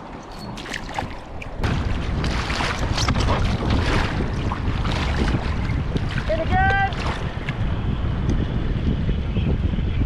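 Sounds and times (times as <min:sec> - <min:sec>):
water splashing against hull: 0:00.0 - 0:07.8
wind buffeting microphone: 0:00.0 - 0:10.0.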